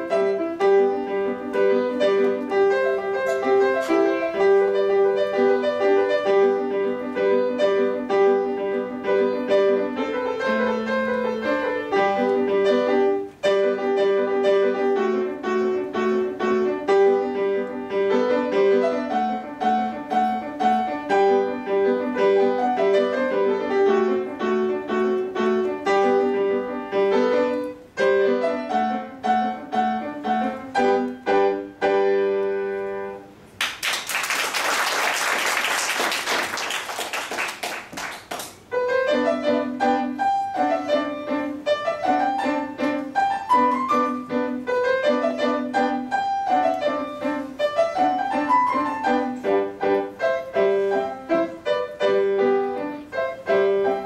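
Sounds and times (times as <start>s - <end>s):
fast classical piano piece: 0.0s - 54.0s.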